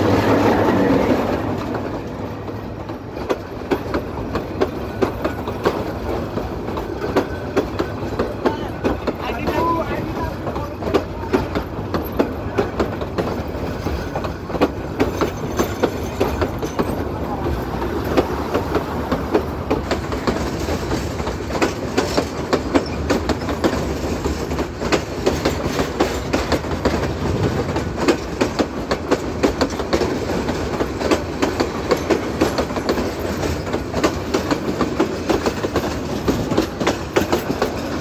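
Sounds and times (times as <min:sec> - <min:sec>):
train wheels rumbling on rail: 0:00.0 - 0:38.0
wheels clacking over rail joints: 0:00.0 - 0:38.0.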